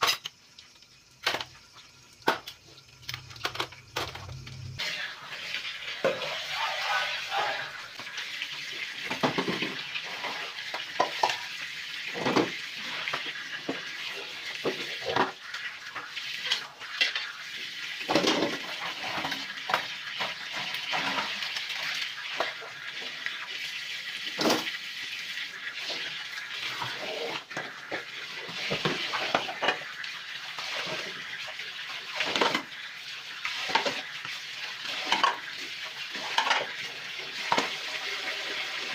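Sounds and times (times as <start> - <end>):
tap water running into sink: 0.0 - 38.9
dishes clinking and knocking: 9.1 - 9.8, 10.9 - 11.5, 35.0 - 35.4, 36.2 - 36.7.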